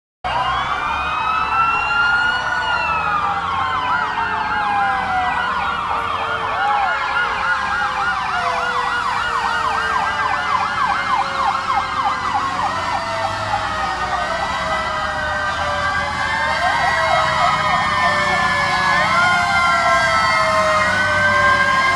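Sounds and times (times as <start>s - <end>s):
siren fast yelp: 0.3s - 21.9s
siren wailing: 0.3s - 21.9s.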